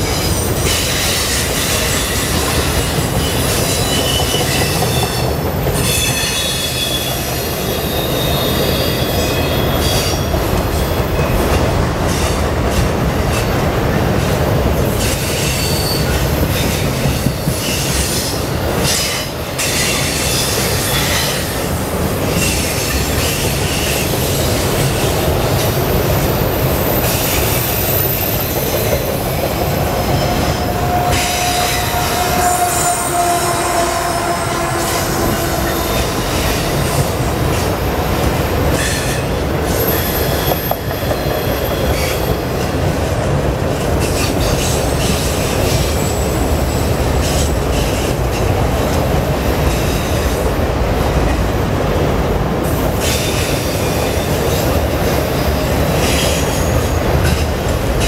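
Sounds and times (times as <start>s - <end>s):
clickety-clack at rail joints: 0.0s - 33.4s, 34.0s - 58.0s
diesel locomotive passing: 0.0s - 58.0s
train wheels rumbling on rails: 0.0s - 58.0s
high-pitched wheel squeal: 15.0s - 16.2s, 29.8s - 37.3s.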